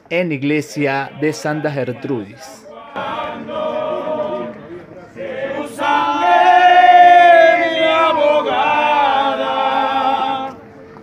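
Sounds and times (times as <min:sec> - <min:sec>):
voices singing a hymn: 0:00.6 - 0:10.7.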